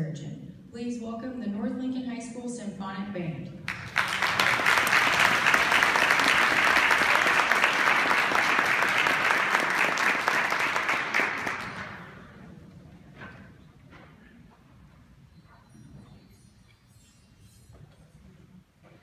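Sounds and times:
audience applauding: 0:03.7 - 0:12.3.

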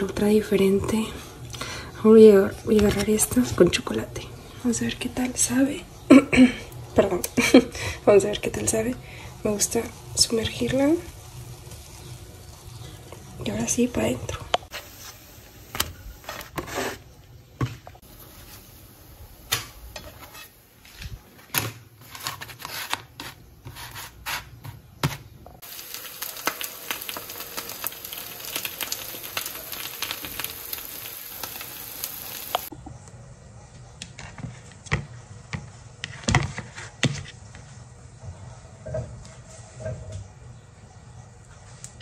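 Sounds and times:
food sizzling in frying pan: 0:08.7 - 0:16.5, 0:25.6 - 0:32.7.

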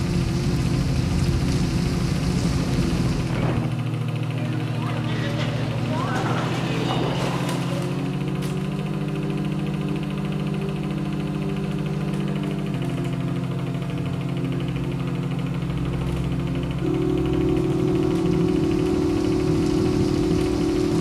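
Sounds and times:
low pulsing drone: 0:00.0 - 0:21.0.

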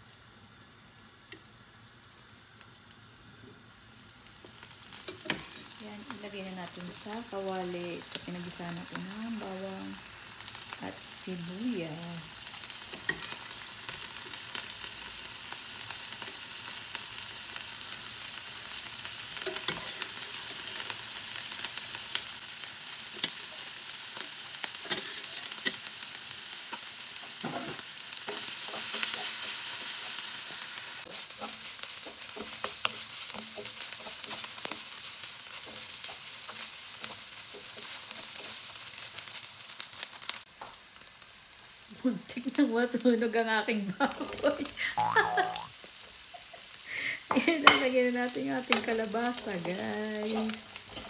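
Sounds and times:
meat sizzling in a wok: 0:00.0 - 0:51.0
wooden spoon scraping a pan: 0:27.4 - 0:38.8, 0:48.6 - 0:51.0.

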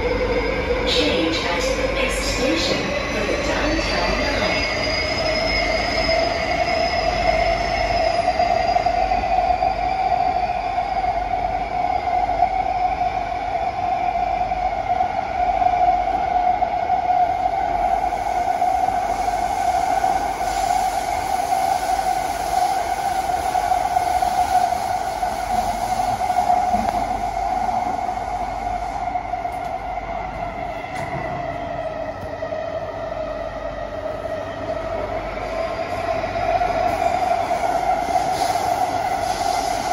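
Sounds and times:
train wheel and track noise: 0:00.0 - 0:39.9.

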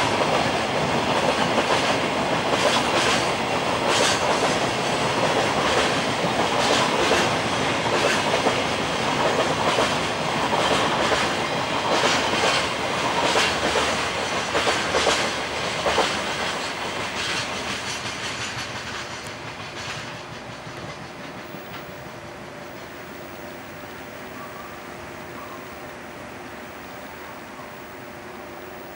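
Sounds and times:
train wheels clattering over rail joints: 0:00.0 - 0:23.1.

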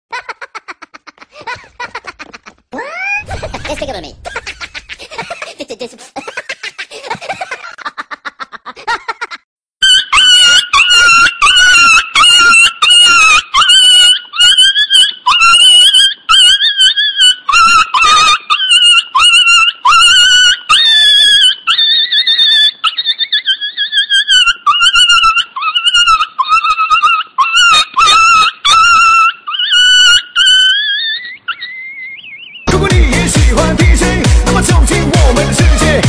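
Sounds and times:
dog whining yelps: 0:09.8 - 0:32.7.

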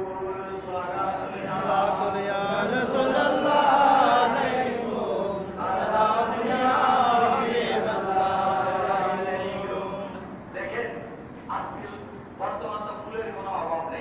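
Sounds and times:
man chanting into a microphone: 0:00.0 - 0:08.1.

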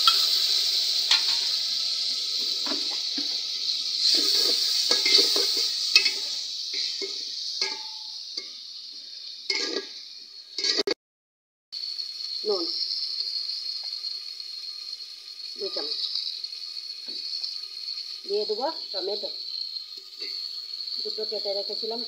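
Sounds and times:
spices sizzling in hot oil: 0:00.0 - 0:11.0, 0:11.7 - 0:22.0
ladle scraping and clinking pot: 0:01.1 - 0:01.5, 0:04.0 - 0:08.0, 0:09.5 - 0:10.0, 0:10.6 - 0:11.0.

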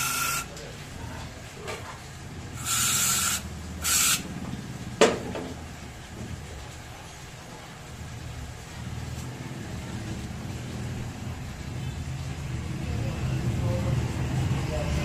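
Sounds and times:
aerosol can spraying: 0:02.6 - 0:04.2.

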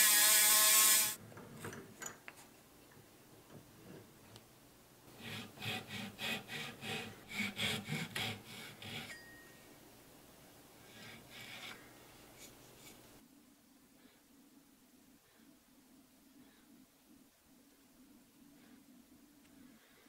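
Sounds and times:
hand saw cutting wood: 0:00.0 - 0:01.2, 0:05.1 - 0:09.2.

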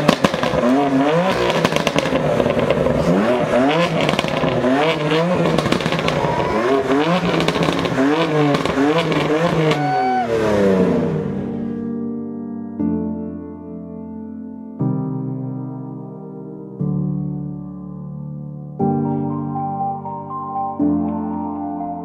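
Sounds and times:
exhaust crackle: 0:00.0 - 0:11.6
racing car engines revving: 0:00.0 - 0:11.8.

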